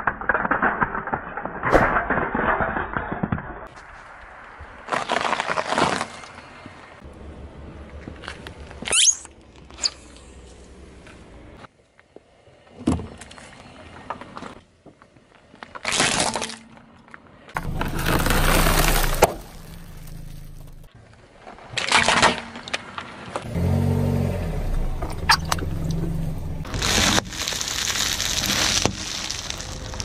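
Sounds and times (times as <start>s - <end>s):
car engine humming: 17.6s - 20.9s, 23.5s - 30.0s
tyre crushing food packets: 17.6s - 20.9s, 26.7s - 30.0s.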